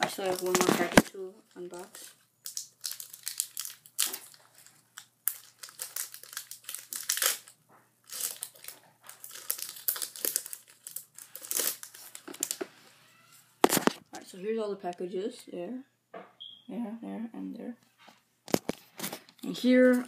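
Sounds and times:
foil wrapper crinkling: 0.0s - 12.6s.

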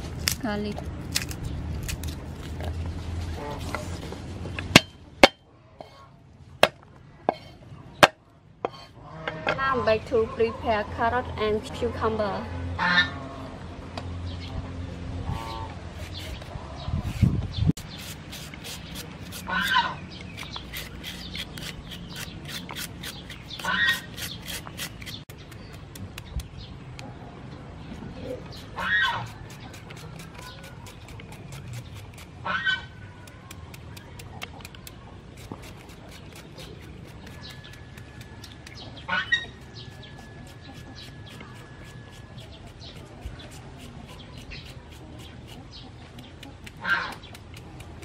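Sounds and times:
peeler scraping vegetables: 15.3s - 26.5s, 28.4s - 48.0s.

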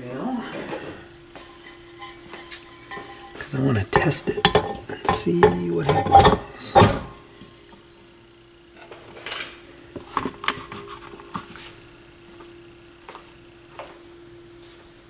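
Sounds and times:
faint steady hum: 0.0s - 15.0s
turntable mat clinks and scrapes: 1.4s - 8.0s.

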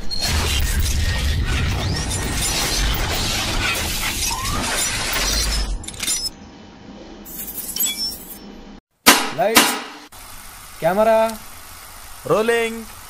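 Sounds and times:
deep rumble: 0.2s - 5.8s
glass shattering crash: 0.2s - 6.3s.

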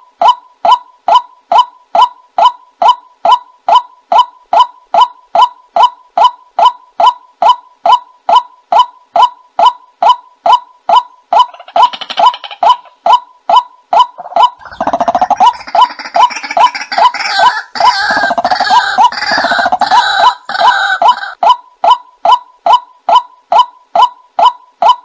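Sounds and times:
harsh overlapping bird calls: 0.2s - 25.0s
waterhen calls: 2.8s - 21.6s.

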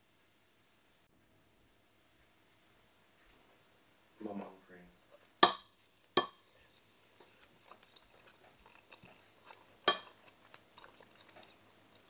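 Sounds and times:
quiet chewing: 5.0s - 12.0s
wooden spoons knocking on plate: 5.4s - 6.4s.

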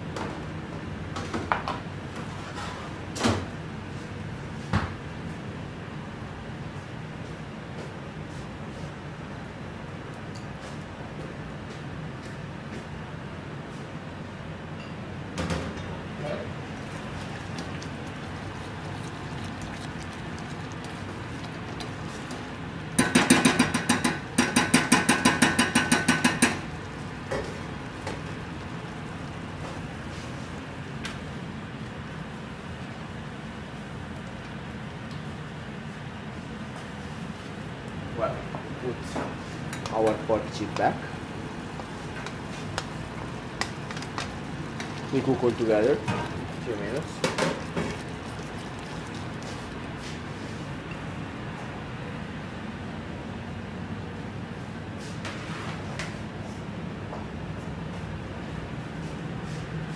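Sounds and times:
low kitchen hum: 0.0s - 59.9s
spatula knocking on saucepan: 23.0s - 26.6s.

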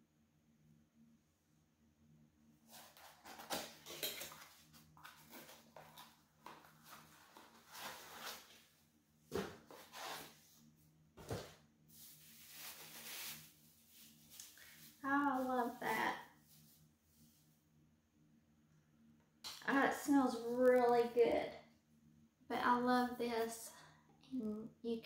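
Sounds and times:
cardboard rustling and scraping: 2.7s - 8.7s, 9.3s - 10.6s, 11.2s - 15.9s.

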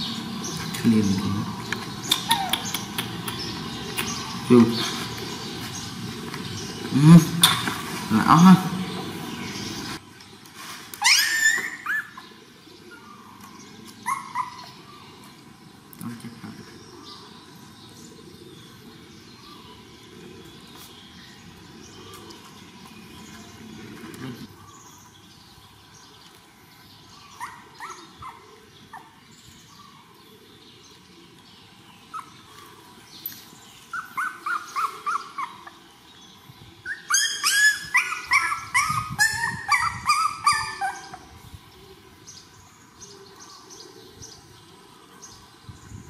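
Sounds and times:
puppies whimpering: 1.5s - 3.0s, 11.0s - 13.4s, 14.0s - 14.9s, 27.4s - 29.2s, 33.9s - 35.8s, 36.8s - 41.4s.

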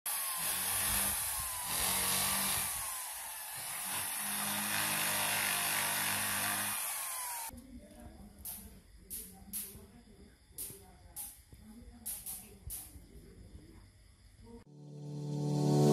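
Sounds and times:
electric drill with brush scrubbing wood: 0.1s - 7.5s.

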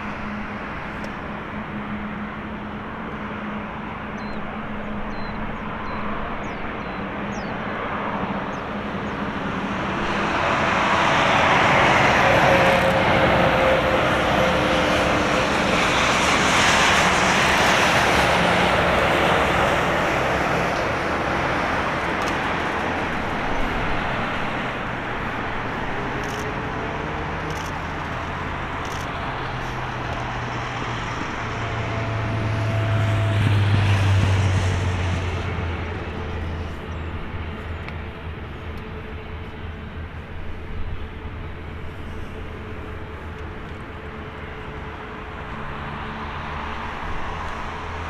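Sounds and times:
jet engines taxiing: 0.0s - 48.0s.

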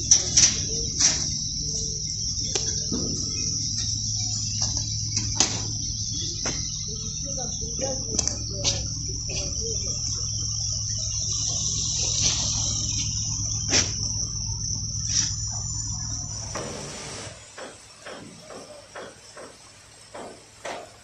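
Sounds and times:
low hum: 0.0s - 17.4s
steady high hiss: 0.0s - 21.0s
sharp knocks: 17.6s - 21.0s.

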